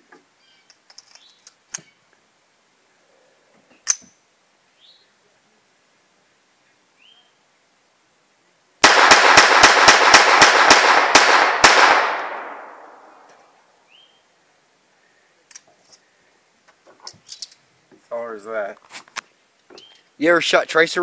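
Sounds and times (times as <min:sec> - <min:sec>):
pistol handling clicks: 0:03.8 - 0:04.1
pistol shots: 0:08.8 - 0:13.2.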